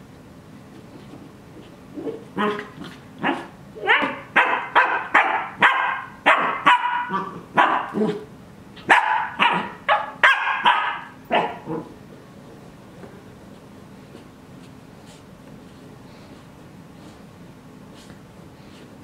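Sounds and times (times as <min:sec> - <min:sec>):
puppy barking: 0:02.4 - 0:08.2, 0:08.8 - 0:11.9.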